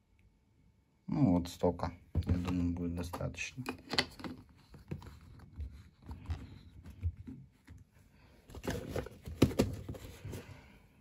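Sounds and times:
plastic bottles clicking and knocking: 2.2 - 5.5.

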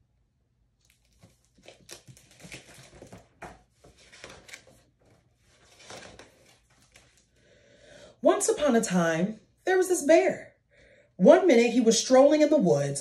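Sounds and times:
paper pages crinkling: 0.8 - 7.4.

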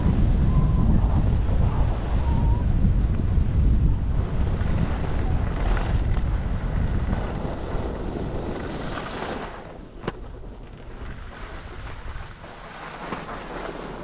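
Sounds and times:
wind buffeting microphone: 0.0 - 14.0
skis sliding on snow: 4.1 - 9.8, 10.5 - 14.0.

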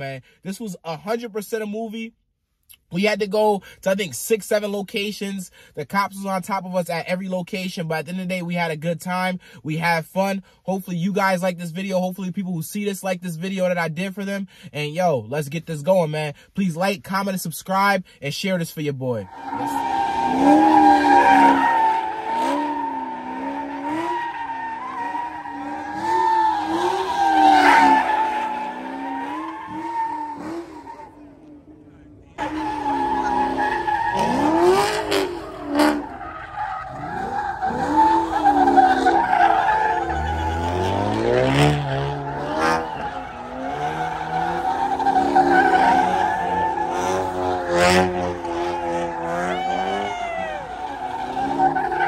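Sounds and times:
tyres squealing on pavement: 19.3 - 31.2, 32.4 - 52.0
car engine revving: 19.3 - 52.0.

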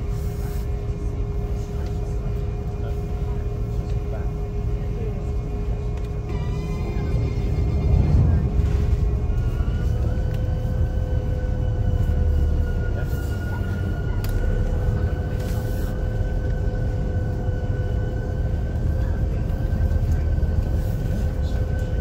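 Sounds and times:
high fan whine: 0.0 - 22.0
hovercraft engine rumble: 0.0 - 22.0.

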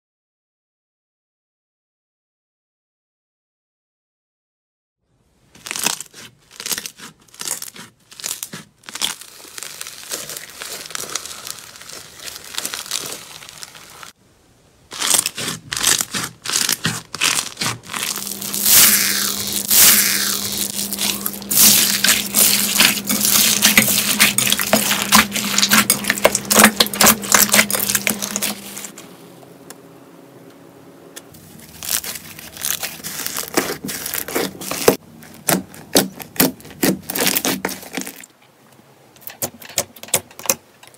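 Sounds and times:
slime crackling and popping: 5.6 - 14.2, 14.9 - 29.0, 31.4 - 38.3
steady low hum: 17.0 - 37.4.

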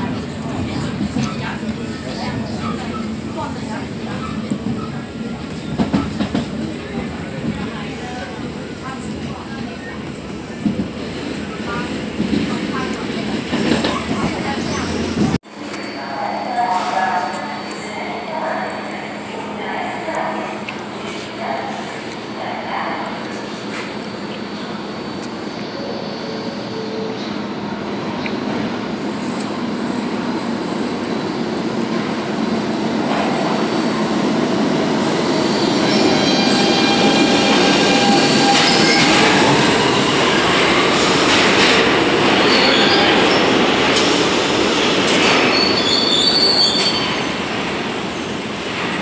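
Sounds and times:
subway train rumbling: 0.0 - 49.0
high wheel squeals: 45.5 - 47.3.

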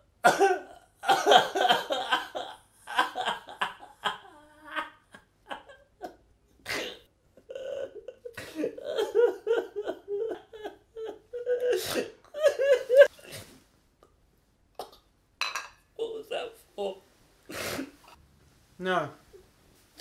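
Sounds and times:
man sobbing and wailing: 0.3 - 6.2, 6.8 - 13.1.

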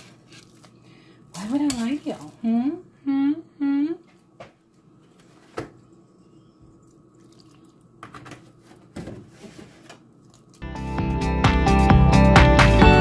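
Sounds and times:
milk splashing into a bowl: 7.2 - 7.9.

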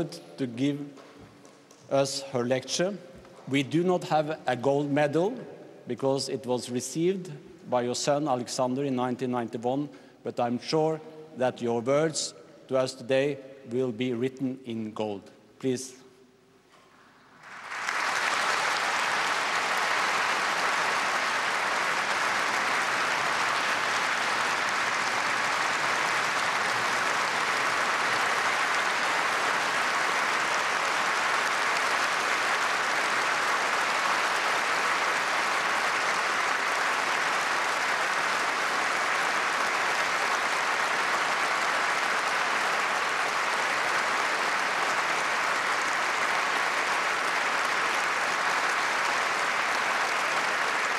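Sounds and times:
large audience applauding: 17.4 - 50.9.

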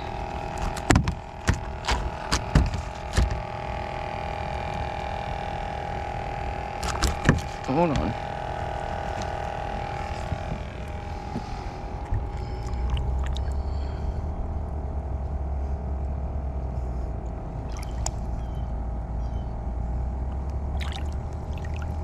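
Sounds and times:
constant hum: 0.0 - 22.0
water sloshing against boat: 6.8 - 14.0, 17.6 - 18.5, 20.7 - 22.0
low rumble: 7.4 - 22.0.

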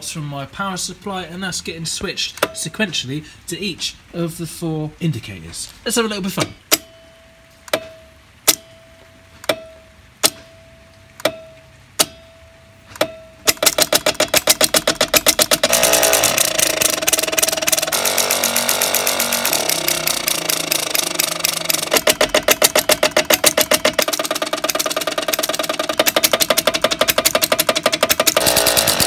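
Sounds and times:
stepping switch clicking: 2.3 - 2.6, 6.3 - 6.9, 7.7 - 8.7, 9.4 - 10.6, 11.2 - 12.2, 12.9 - 28.5
faint steady tone: 6.7 - 13.4.

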